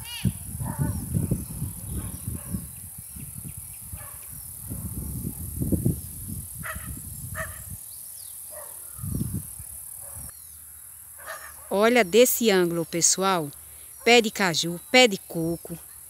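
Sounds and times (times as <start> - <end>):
wind rumbling on microphone: 0.0 - 10.3
high insect buzz: 0.0 - 16.0
distant dog barking: 0.6 - 1.1, 1.9 - 2.7, 4.0 - 5.0, 6.6 - 7.7, 8.5 - 8.9, 10.0 - 10.3, 11.2 - 11.7.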